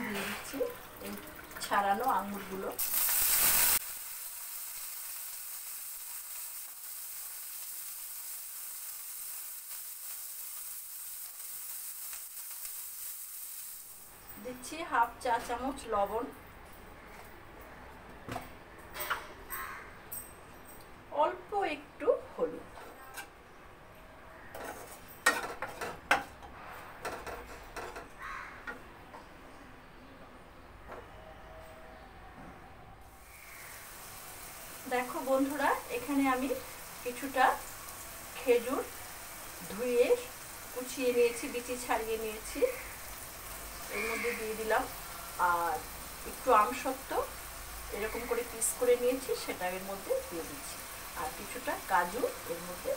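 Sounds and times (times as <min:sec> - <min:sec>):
grapes sizzling in hot oil: 0:00.0 - 0:15.9, 0:33.2 - 0:52.9
wooden spatula scraping a pan: 0:24.6 - 0:28.0.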